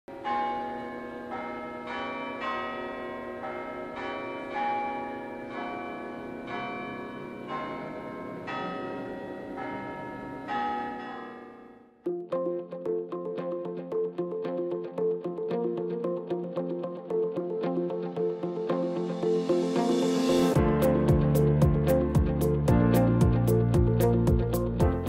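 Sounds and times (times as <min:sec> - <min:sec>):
chime bells playing slow melody: 0:00.1 - 0:11.9.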